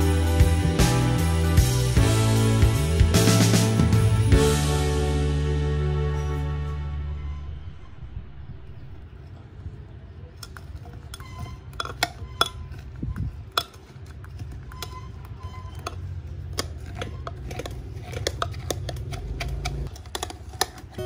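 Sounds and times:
low crushing rumble: 7.1s - 10.4s.

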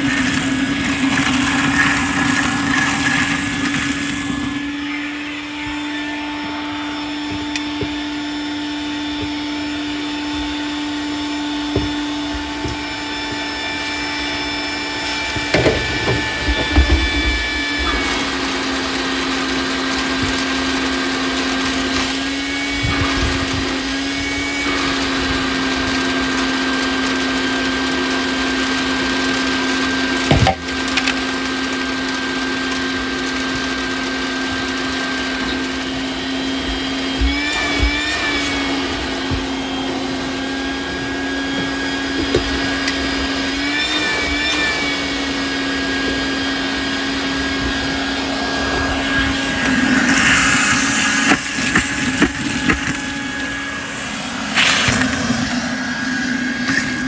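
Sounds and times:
vacuum cleaner running: 0.0s - 57.0s.

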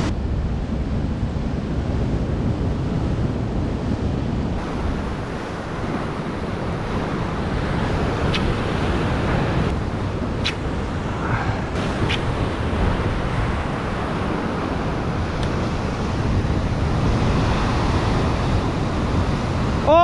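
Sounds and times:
wind buffeting microphone: 0.0s - 20.0s
surf breaking over rocks: 4.6s - 20.0s.

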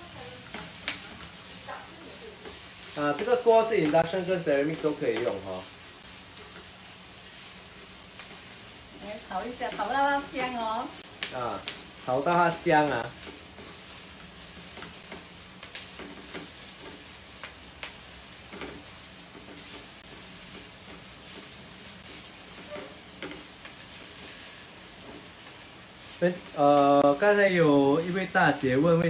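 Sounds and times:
spatula scraping and knocking wok: 0.0s - 26.6s
onion and garlic sizzling in oil: 0.0s - 29.0s.

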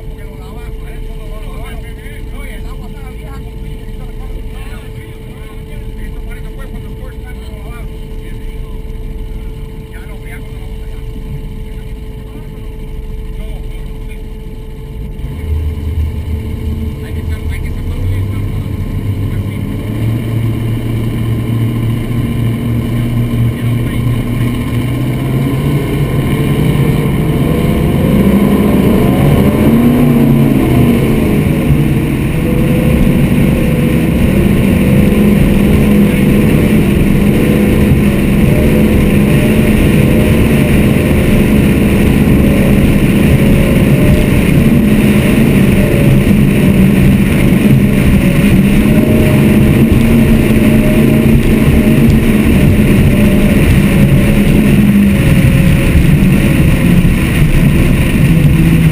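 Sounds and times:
boat engine drone: 0.0s - 58.9s
rushing wind and water: 14.4s - 58.9s.

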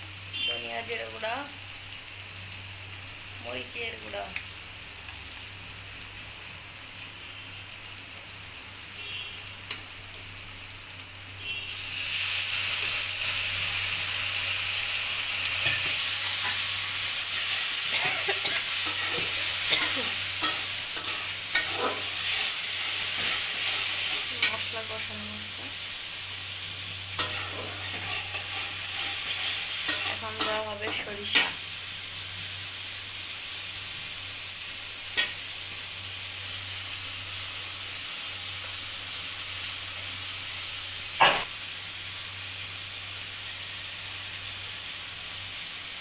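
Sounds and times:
food sizzling in hot oil: 0.0s - 46.0s
metal spatula scraping a pan: 15.6s - 24.6s, 27.2s - 31.6s.

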